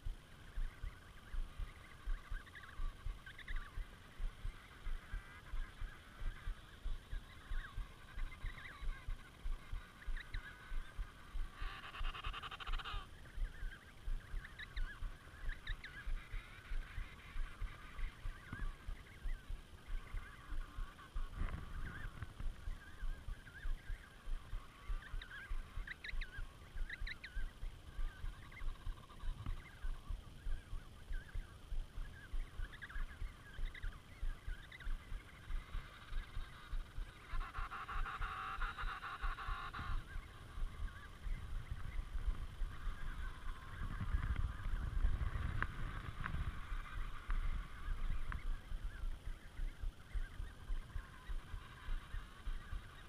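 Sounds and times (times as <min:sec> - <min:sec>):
penguins trumpeting calls: 0:07.3 - 0:13.1
rapid low thumping: 0:13.2 - 0:37.4, 0:39.3 - 0:53.0.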